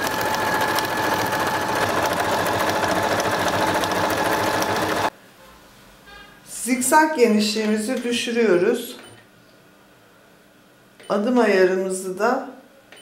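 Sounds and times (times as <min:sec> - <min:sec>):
sewing machine running: 0:00.0 - 0:05.1.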